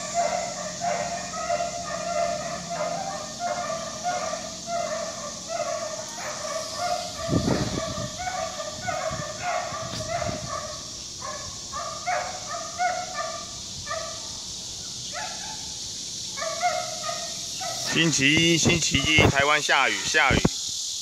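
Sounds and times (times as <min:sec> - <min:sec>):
dogs barking: 0:00.0 - 0:20.4
steady hiss: 0:00.0 - 0:21.0.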